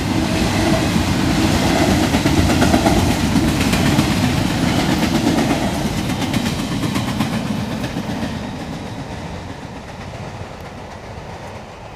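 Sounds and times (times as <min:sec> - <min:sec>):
train wheels clacking over rail joints: 0:00.0 - 0:11.9.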